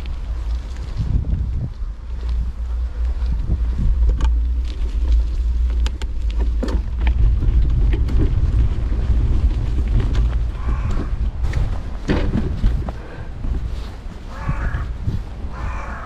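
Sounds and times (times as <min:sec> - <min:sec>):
wind buffeting microphone: 0:00.0 - 0:16.0
sharp clicks and rattles: 0:02.2 - 0:13.0.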